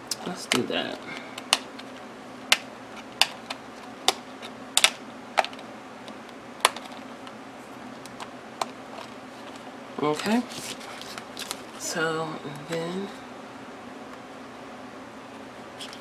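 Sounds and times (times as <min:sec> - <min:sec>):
plastic discs clicking onto cover: 0:01.4 - 0:04.2, 0:04.8 - 0:07.1.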